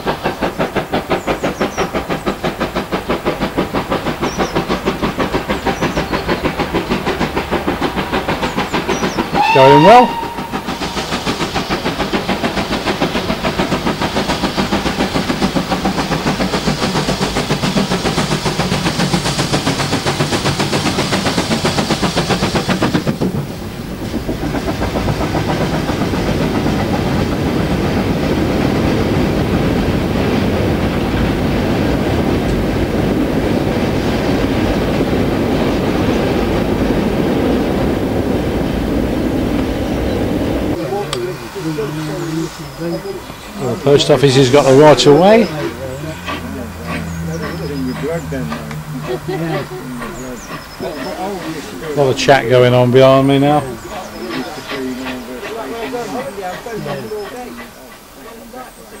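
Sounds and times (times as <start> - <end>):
steam hiss: 0.0 - 59.0
steam locomotive exhaust beating: 0.0 - 59.0
wagons clattering over rail joints: 40.7 - 59.0.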